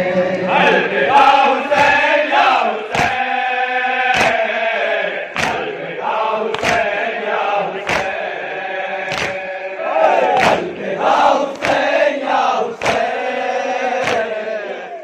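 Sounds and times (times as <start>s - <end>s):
group chanting a lament: 0.0s - 15.0s
hands slapping chests: 1.4s - 2.1s, 2.9s - 3.3s, 4.1s - 4.5s, 5.3s - 5.8s, 6.4s - 7.0s, 7.8s - 8.3s, 9.0s - 9.5s, 10.2s - 10.8s, 11.4s - 12.0s, 12.7s - 13.2s, 13.9s - 14.5s.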